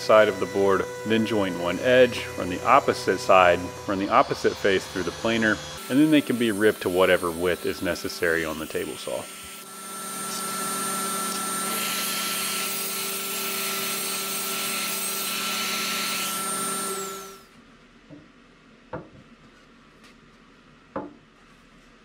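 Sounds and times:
dust extractor running: 0:00.0 - 0:08.2, 0:09.1 - 0:12.4.

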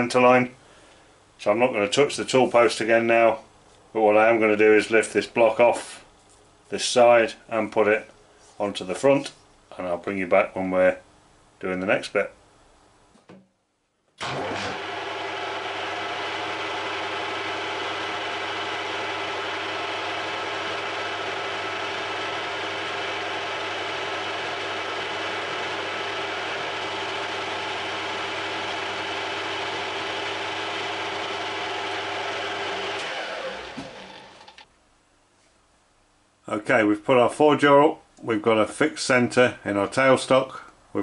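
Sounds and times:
lathe running whine: 0:14.2 - 0:34.6.

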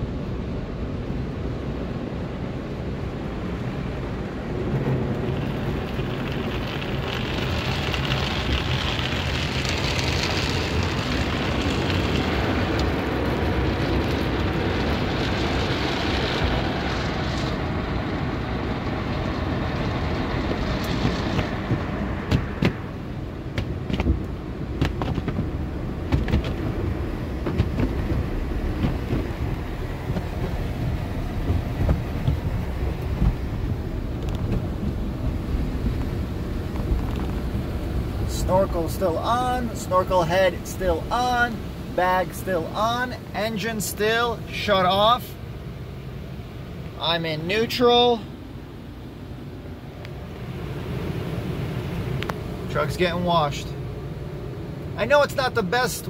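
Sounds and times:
water spraying on windshield: 0:03.5 - 0:56.0
car wash brushes slapping: 0:04.6 - 0:44.9.

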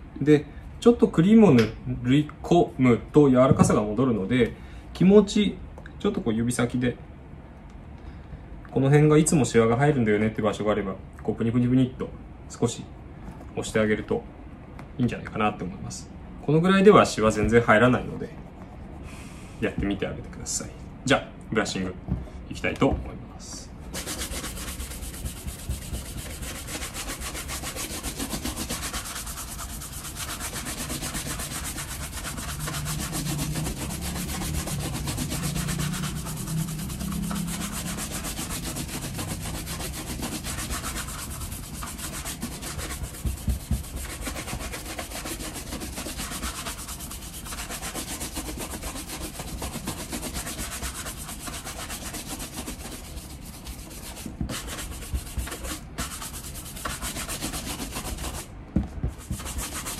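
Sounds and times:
brush scrubbing leather shoes: 0:23.9 - 0:59.9.

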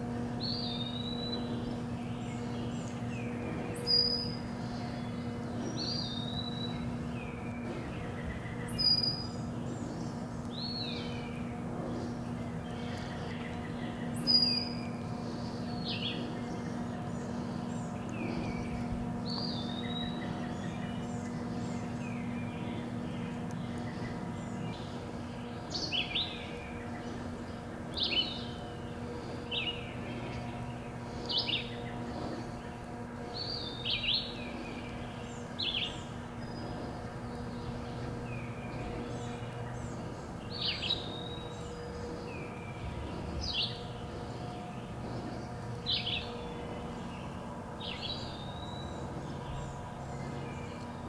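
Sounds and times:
low background hum: 0:00.0 - 0:51.0
songbird singing: 0:00.0 - 0:51.0.

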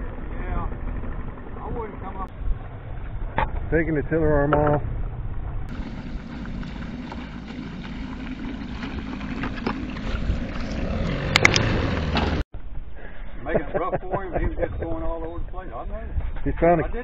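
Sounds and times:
wind rumble on microphone: 0:00.0 - 0:17.0
outboard motor idling: 0:05.7 - 0:12.4.

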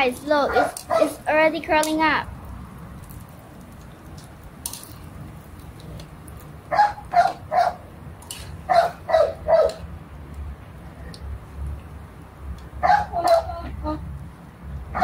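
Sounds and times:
dog barking: 0:00.5 - 0:01.2, 0:06.7 - 0:07.8, 0:08.7 - 0:09.8, 0:12.8 - 0:13.5.

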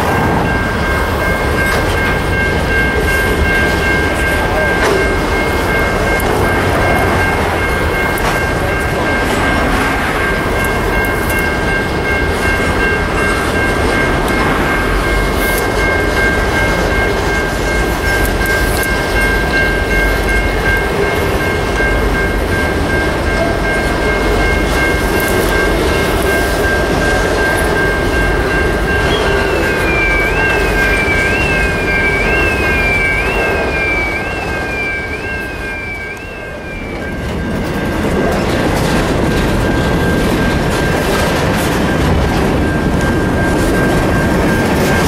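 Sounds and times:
freight train rumbling on rails: 0:00.0 - 0:45.0
steady high-pitched tones: 0:00.0 - 0:45.0
rising and falling high tone: 0:29.0 - 0:37.4.

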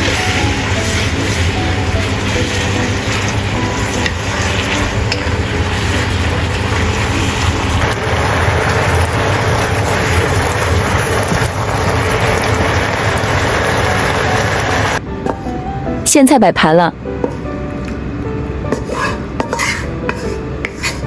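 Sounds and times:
wooden spatula stirring: 0:00.0 - 0:05.8, 0:18.8 - 0:21.0
leaves sizzling in a wok: 0:00.0 - 0:15.0.

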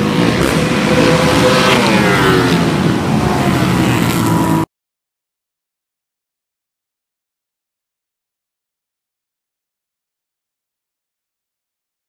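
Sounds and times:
atv engines revving: 0:00.0 - 0:04.7.

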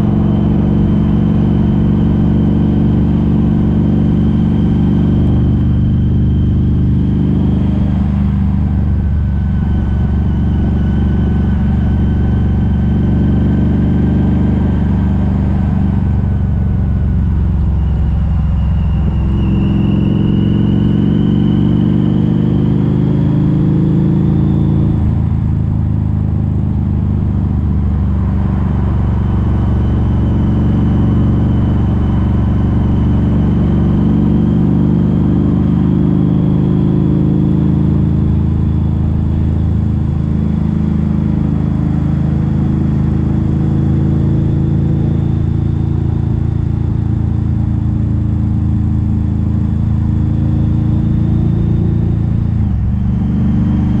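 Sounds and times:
motorcycle engine running hard: 0:00.0 - 0:54.0
faint whine: 0:07.4 - 0:13.5, 0:14.6 - 0:22.2.

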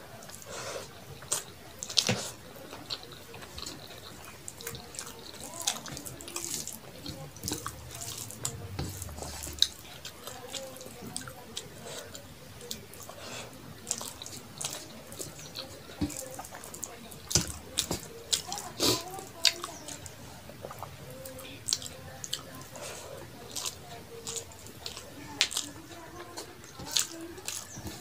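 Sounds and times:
fingers squishing rice: 0:00.0 - 0:28.0
wet chewing: 0:00.0 - 0:28.0.

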